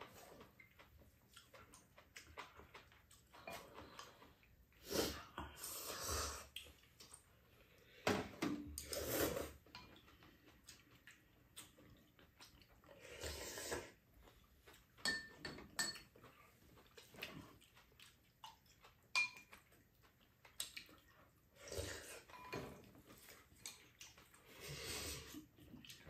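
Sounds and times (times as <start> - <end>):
chopsticks and spoons clinking bowls: 3.4 - 4.1, 14.7 - 16.4, 19.1 - 19.7, 22.2 - 23.0
slurping noodles and soup: 3.5 - 6.8, 8.7 - 9.7, 12.9 - 14.1, 21.5 - 25.9.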